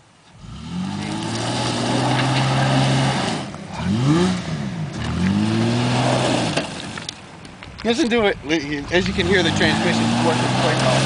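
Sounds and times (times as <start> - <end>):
pickup truck engine revving: 0.4 - 7.2, 8.8 - 11.0.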